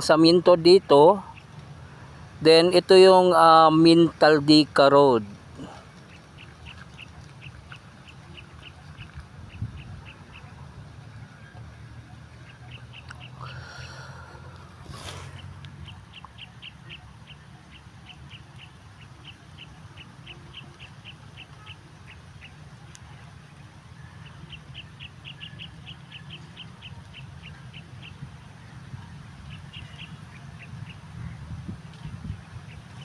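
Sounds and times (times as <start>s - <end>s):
bird chirping: 12.4s - 22.6s, 24.0s - 28.2s.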